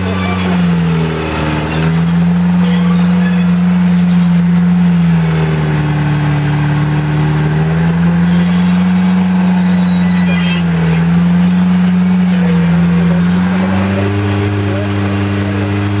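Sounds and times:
buggy engine revving under load: 0:00.0 - 0:16.0.

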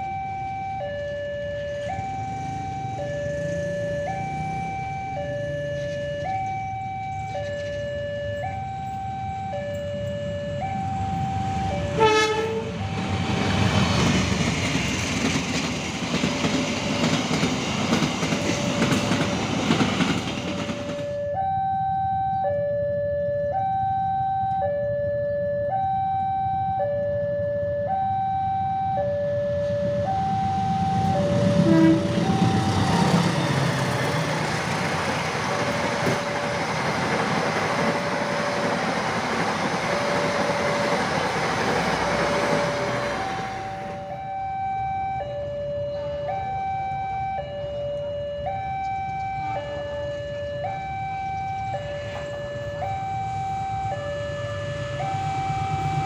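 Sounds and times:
train wheel and rail noise: 0:00.0 - 0:56.0
locomotive horn blast: 0:11.8 - 0:13.1, 0:31.0 - 0:33.8.

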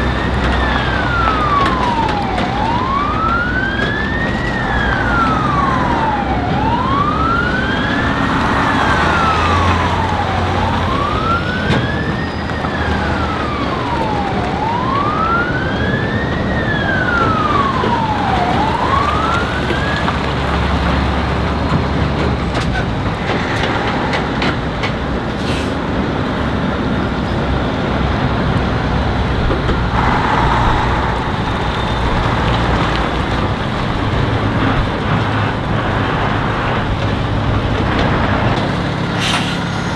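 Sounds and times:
siren wailing: 0:00.0 - 0:21.4, 0:27.6 - 0:36.8
diesel trucks driving past: 0:00.0 - 0:39.9.

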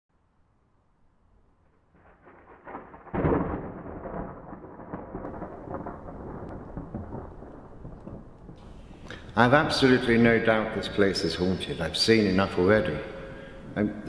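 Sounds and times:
thunderclap: 0:01.9 - 0:14.0
rolling thunder rumble: 0:02.0 - 0:14.0.

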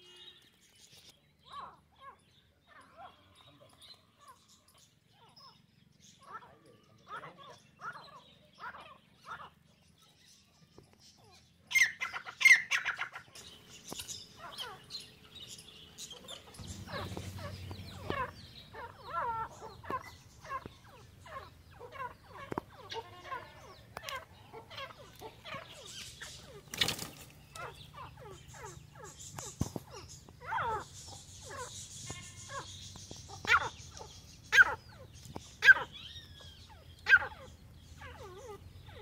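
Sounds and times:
chirps and clucks: 0:00.0 - 0:39.0
fowl calling: 0:16.3 - 0:26.6.

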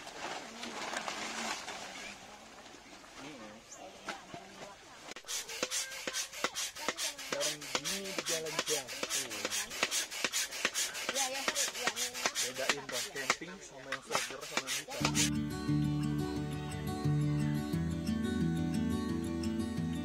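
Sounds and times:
manual coffee grinder grinding: 0:05.2 - 0:13.1.

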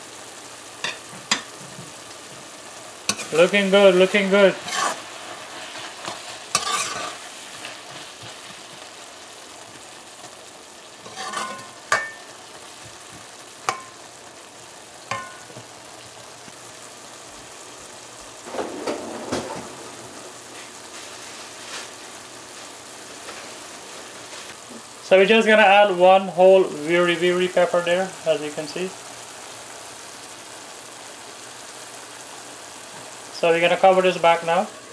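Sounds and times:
cabbage sizzling in pot: 0:00.0 - 0:34.9
spoon scraping metal pot: 0:06.6 - 0:07.2, 0:11.1 - 0:12.2.

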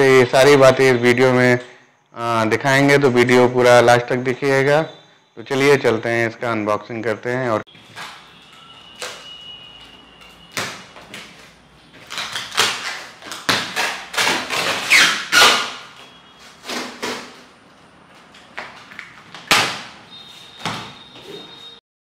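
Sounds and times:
tape and straps ripping off cardboard: 0:10.5 - 0:17.5.

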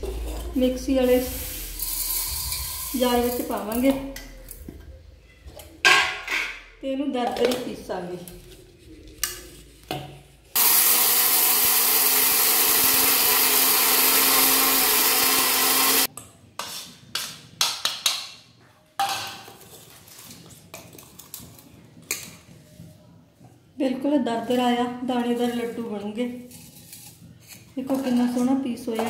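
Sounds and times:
mixer grinder running: 0:10.6 - 0:16.1.

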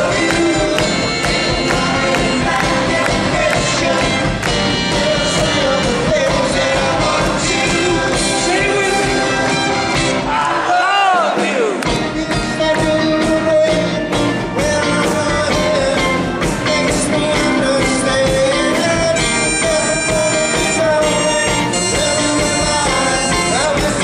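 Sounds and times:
drums steady beat: 0:00.0 - 0:10.5, 0:11.2 - 0:24.0
live rock band playing: 0:00.0 - 0:24.0.

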